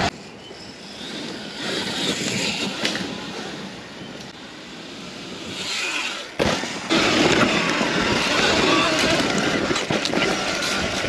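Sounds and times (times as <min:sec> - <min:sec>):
electric motorbike whine: 0:00.0 - 0:11.0
tyre noise on dirt: 0:05.2 - 0:11.0.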